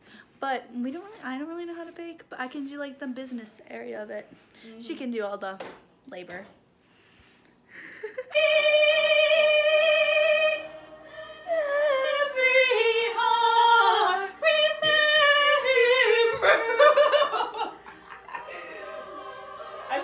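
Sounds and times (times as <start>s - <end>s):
woman singing through laptop speakers: 8.3s - 17.4s.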